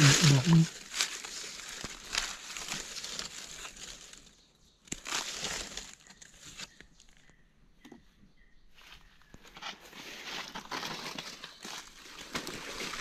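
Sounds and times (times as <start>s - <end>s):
dry leaves rustling and crackling: 0.0s - 6.7s, 9.5s - 13.0s.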